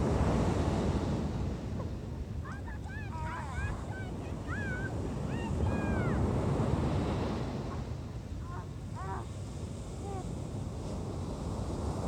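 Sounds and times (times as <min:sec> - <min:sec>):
ocean surf on beach: 0:00.0 - 0:02.4, 0:03.7 - 0:08.0.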